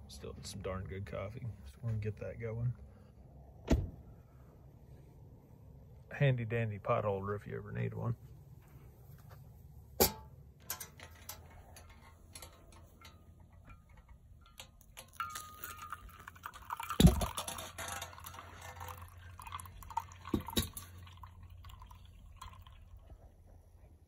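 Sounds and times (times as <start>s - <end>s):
thump: 3.6s - 4.0s
metal clinks: 10.0s - 21.2s
hot water pouring into filter: 15.0s - 23.5s.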